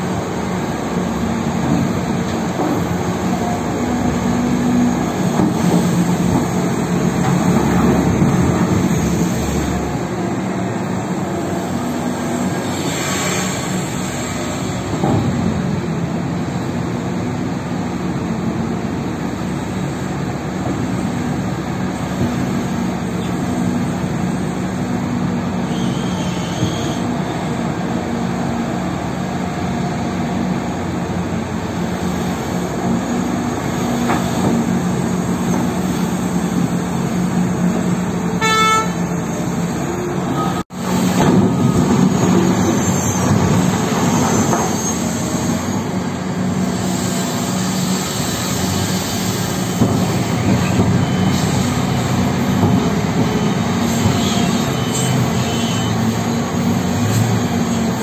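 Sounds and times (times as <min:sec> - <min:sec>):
heavy diesel engines droning: 0:00.0 - 0:58.0
horn blast: 0:38.4 - 0:39.1.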